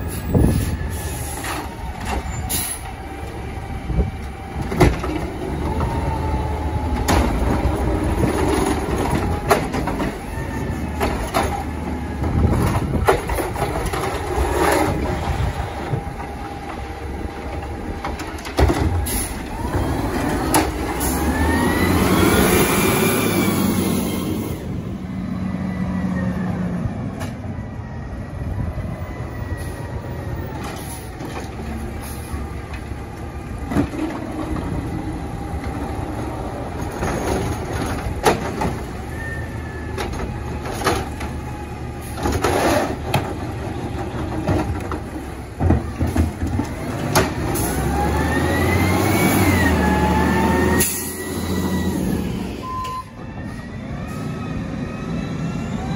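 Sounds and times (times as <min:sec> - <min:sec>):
garbage truck engine revving: 0:04.5 - 0:26.0, 0:30.6 - 0:52.7.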